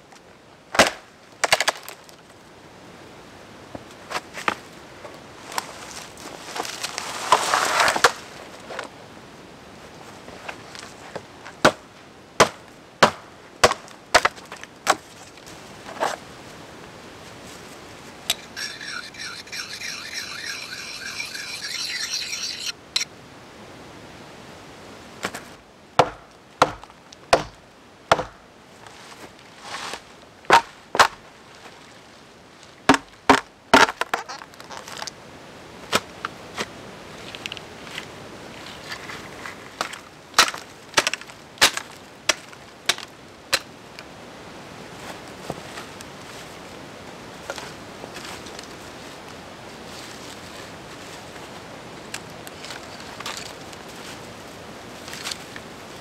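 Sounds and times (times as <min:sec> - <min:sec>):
high rasping sound: 0:18.3 - 0:23.1.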